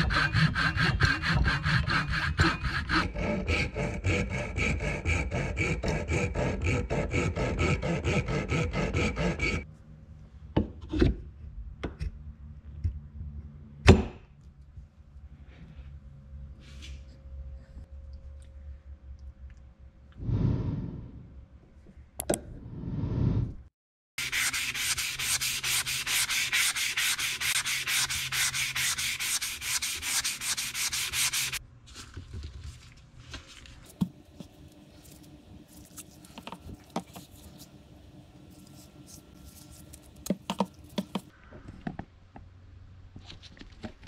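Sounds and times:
sanding pad scratching wood: 0:00.0 - 0:09.6, 0:24.2 - 0:31.6.

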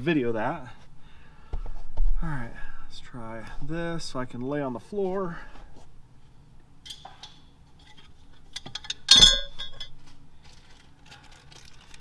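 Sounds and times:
sharp metallic clink: 0:08.8 - 0:09.9.

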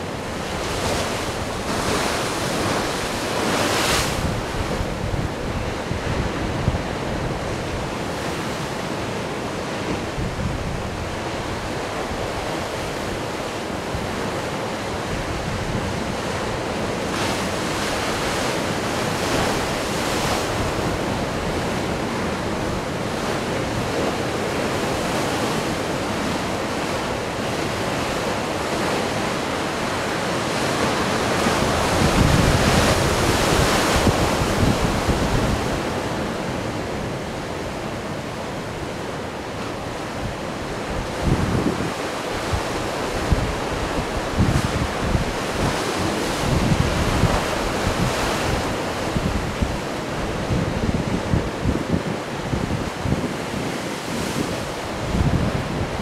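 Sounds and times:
surf washing onto shore: 0:00.0 - 0:56.0
wind buffeting microphone: 0:30.6 - 0:56.0.

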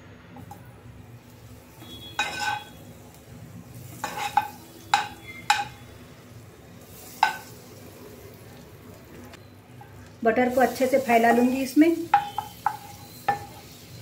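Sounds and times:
butter sizzling: 0:00.9 - 0:14.0
spoon clinking against pan: 0:02.1 - 0:02.8, 0:04.0 - 0:05.8, 0:12.0 - 0:13.6.

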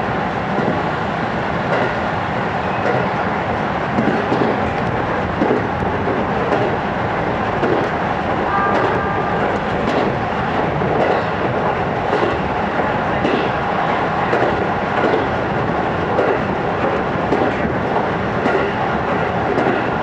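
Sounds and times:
train wheels rumbling on rails: 0:00.0 - 0:20.0
faint rail-joint clicks: 0:04.0 - 0:05.7, 0:19.5 - 0:20.0.

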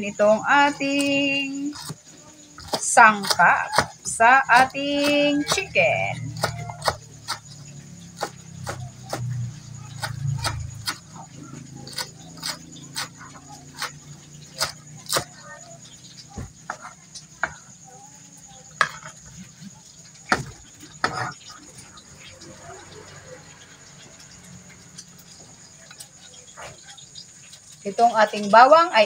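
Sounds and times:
knife chopping on plastic board: 0:02.6 - 0:05.7, 0:06.3 - 0:09.3, 0:09.9 - 0:11.1, 0:11.9 - 0:13.2, 0:14.5 - 0:15.4, 0:20.3 - 0:21.4.

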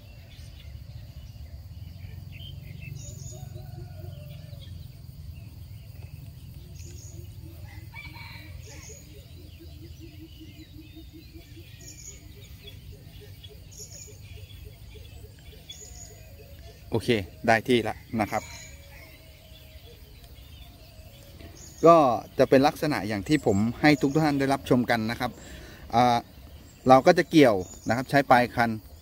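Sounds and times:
faint bird chirps: 0:00.0 - 0:29.0
rooster crowing: 0:03.0 - 0:04.9, 0:07.4 - 0:10.4, 0:17.7 - 0:20.0.

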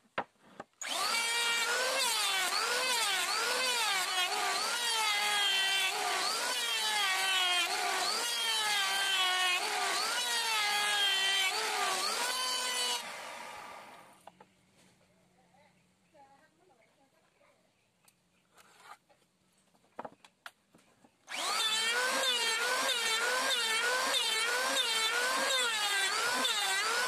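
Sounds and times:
electric hand planer shaving wood: 0:00.8 - 0:14.1, 0:21.3 - 0:27.0.

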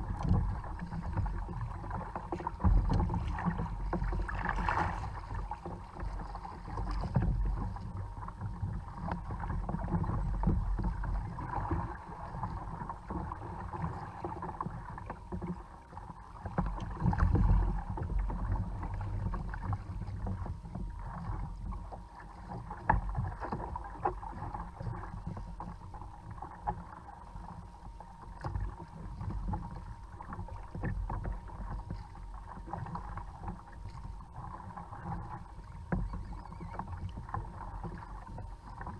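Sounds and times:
water splashing against kayak: 0:00.0 - 0:38.9.

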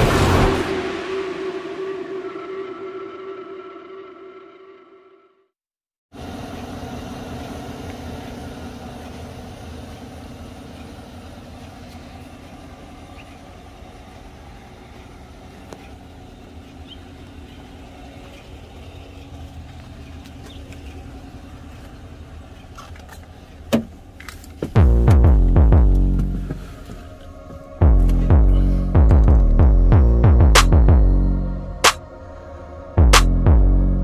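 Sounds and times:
pickup engine idling: 0:06.2 - 0:29.8.

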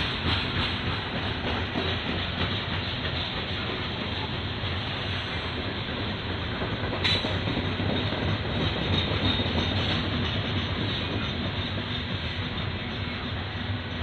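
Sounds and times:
train wheels rumbling on rail: 0:00.0 - 0:14.0
sharp rail clack: 0:06.9 - 0:12.3.

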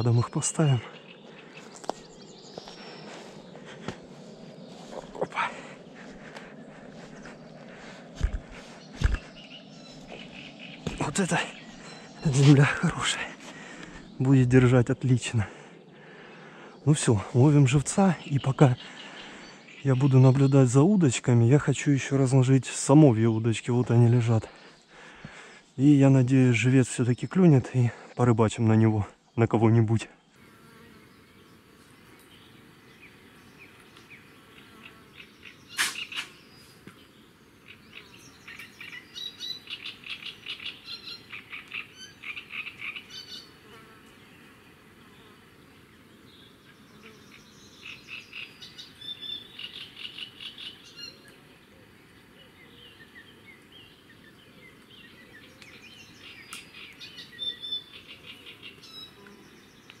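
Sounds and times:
rapid chirping trills: 0:00.0 - 0:17.1, 0:32.4 - 0:43.8
sharp click: 0:35.8 - 0:36.4.

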